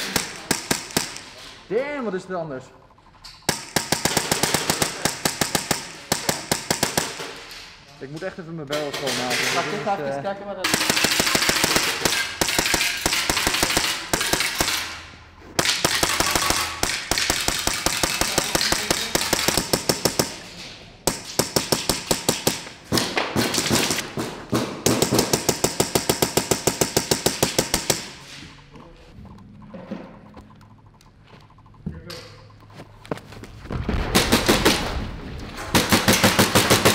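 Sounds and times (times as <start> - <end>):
airsoft gun rapid bursts: 3.5 - 7.1, 10.7 - 14.8, 15.6 - 20.4, 21.1 - 22.6, 35.8 - 36.9.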